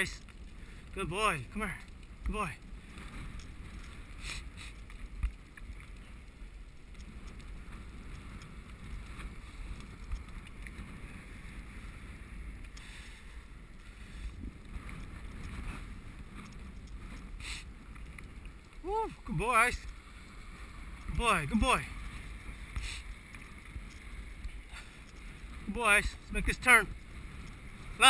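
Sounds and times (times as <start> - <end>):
bicycle tyre rumble: 0.0 - 28.0
bike rattles: 13.4 - 18.7.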